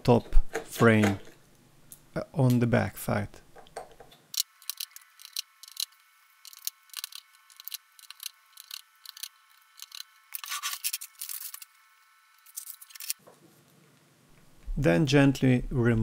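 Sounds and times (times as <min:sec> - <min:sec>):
screwdriver clicking on screws: 0:04.4 - 0:11.6
screwdriver scraping: 0:04.4 - 0:11.7, 0:12.4 - 0:13.2.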